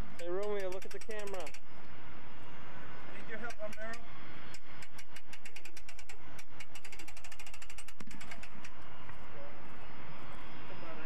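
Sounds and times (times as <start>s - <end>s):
winch ratchet clicking: 0.1s - 1.7s, 3.4s - 8.8s.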